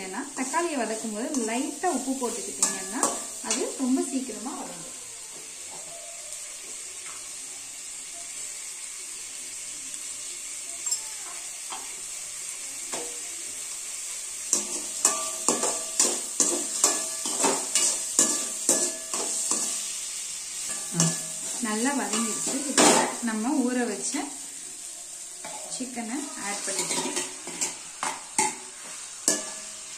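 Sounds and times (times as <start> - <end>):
onions sizzling in oil: 0.0 - 29.9
ladle scraping and clinking pan: 26.6 - 29.8.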